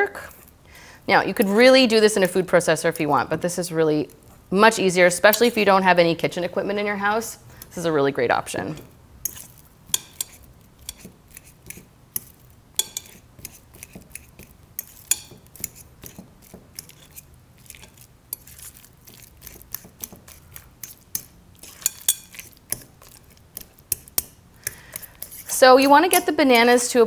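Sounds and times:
fork clinking and scraping glass bowl: 0:08.7 - 0:26.8.

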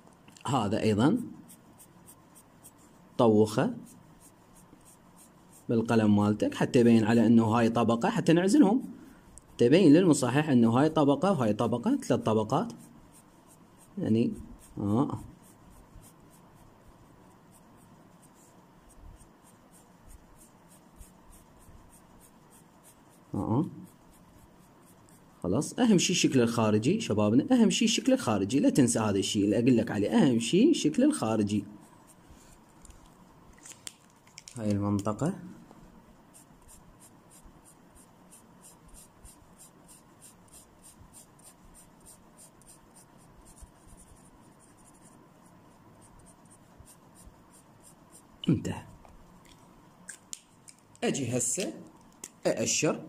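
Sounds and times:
marker scratching on paper: 0:01.2 - 0:06.0, 0:11.2 - 0:25.4, 0:31.0 - 0:32.6, 0:36.2 - 0:48.4.

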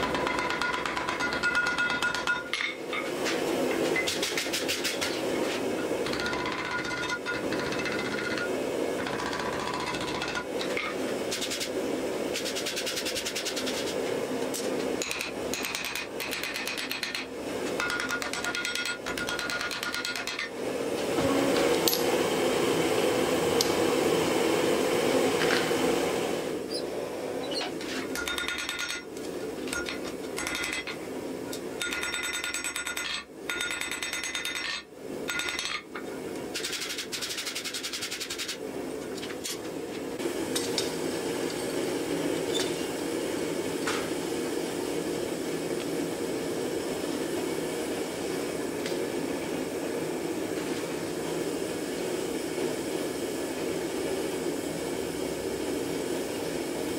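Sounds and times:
hammer striking hot steel: 0:00.0 - 0:05.2, 0:05.8 - 0:11.7, 0:14.5 - 0:20.5, 0:27.8 - 0:38.4.

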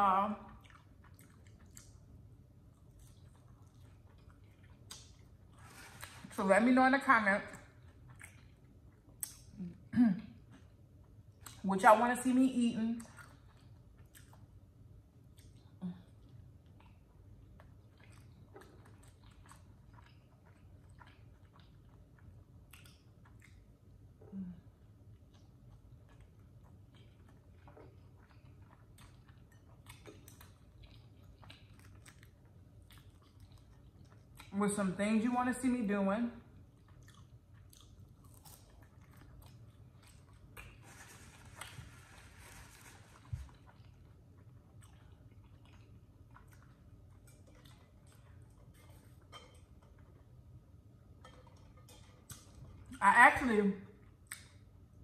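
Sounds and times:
close-up chewing: 0:00.0 - 0:06.4, 0:07.0 - 0:12.3, 0:12.9 - 0:35.7, 0:36.4 - 0:55.0
wet mouth clicks: 0:54.2 - 0:54.6.

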